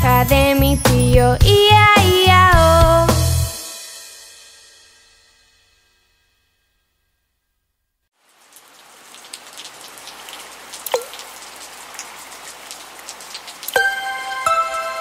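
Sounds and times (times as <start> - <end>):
rain falling: 8.1 - 15.0
raindrops plinking: 8.2 - 15.0
music with bright sustained notes: 13.8 - 15.0.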